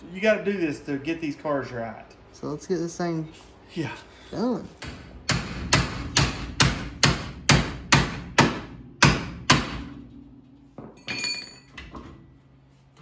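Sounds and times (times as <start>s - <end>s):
metallic ring: 10.0s - 11.9s.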